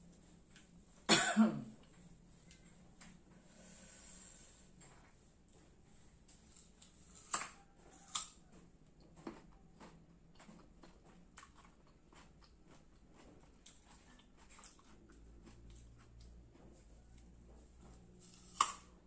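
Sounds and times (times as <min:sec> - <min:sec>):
mango slice crunching: 0:18.2 - 0:19.0.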